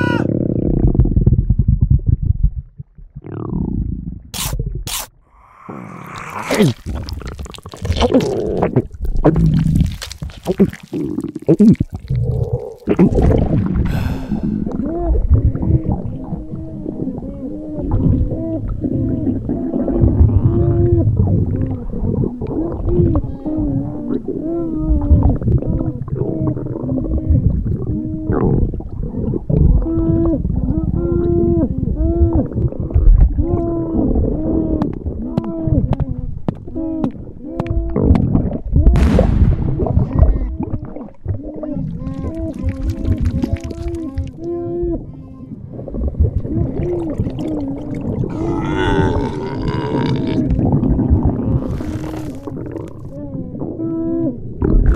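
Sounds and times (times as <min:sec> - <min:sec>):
stomach rumbling and gurgling: 0:00.0 - 0:54.9
creaking groans: 0:48.3 - 0:50.7.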